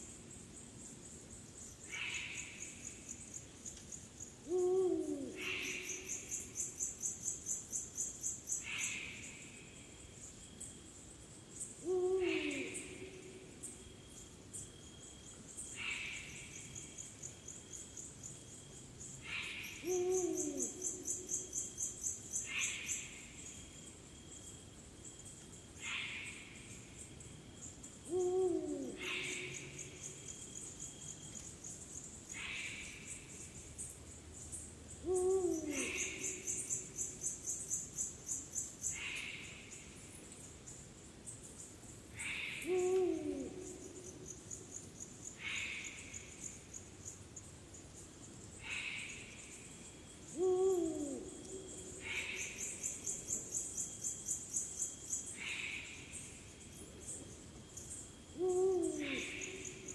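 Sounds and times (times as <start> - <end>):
crickets chirping: 0.0 - 59.9
insects rasping: 0.0 - 59.9
owl hooting: 4.5 - 6.2, 11.8 - 13.3, 19.3 - 21.4, 28.1 - 29.7, 35.0 - 36.9, 42.2 - 44.1, 50.3 - 53.1, 58.4 - 59.9.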